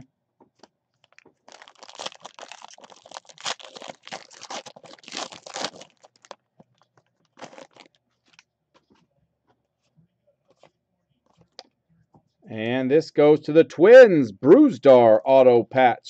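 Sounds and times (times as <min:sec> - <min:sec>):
foil wrapper tearing and crinkling: 0:01.0 - 0:06.4, 0:07.2 - 0:08.4.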